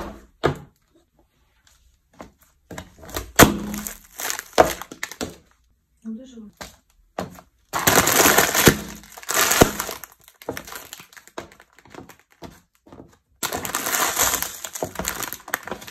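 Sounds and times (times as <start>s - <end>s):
plastic bag of snacks crunching: 3.4s - 5.4s, 7.8s - 12.4s, 13.4s - 15.9s.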